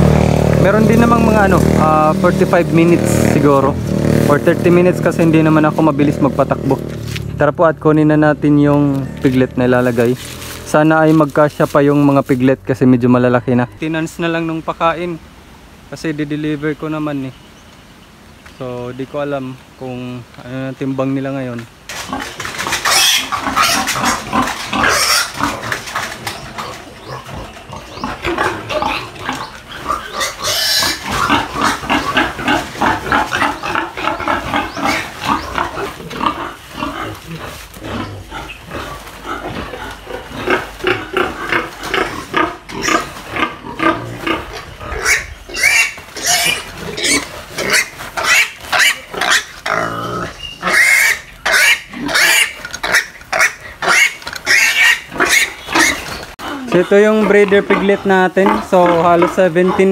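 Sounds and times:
piglets squealing: 22.1 - 59.9.

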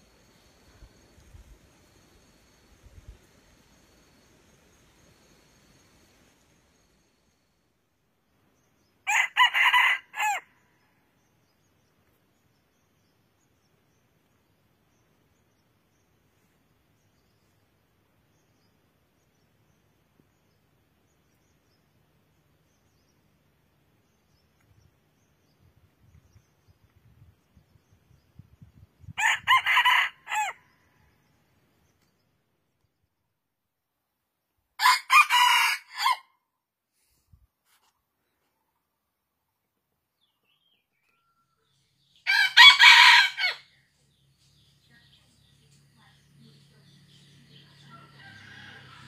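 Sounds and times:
rooster crowing: 9.1 - 10.5, 29.2 - 30.6, 34.8 - 36.3, 42.2 - 43.7, 47.8 - 49.0.

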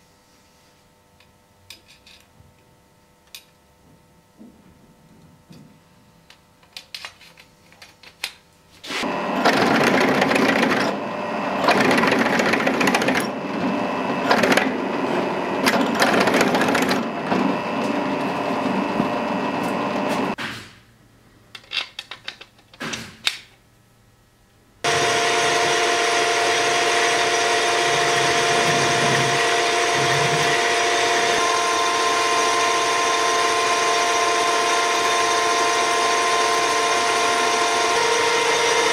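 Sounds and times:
drill press boring into steel: 9.0 - 20.4, 24.9 - 38.9
metal lathe humming: 9.0 - 20.4, 24.8 - 38.9.

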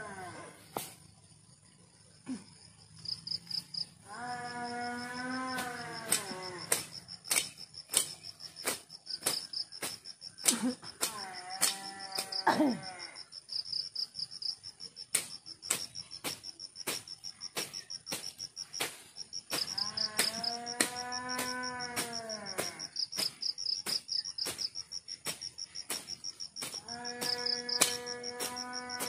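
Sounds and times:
animal long drawn-out call: 0.0 - 0.6, 4.0 - 6.7
crickets chirping: 0.0 - 29.0.

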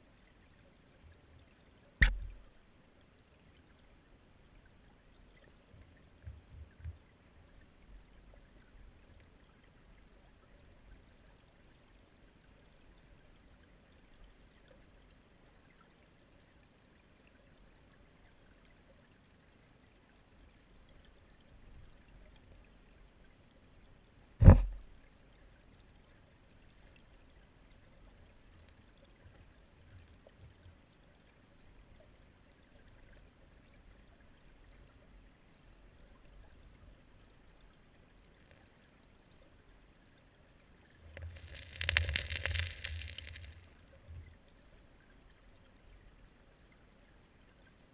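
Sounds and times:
muffled underwater river over gravel: 0.0 - 47.9
sharp loud knock: 24.4 - 24.8
soft thumps: 24.4 - 24.8.

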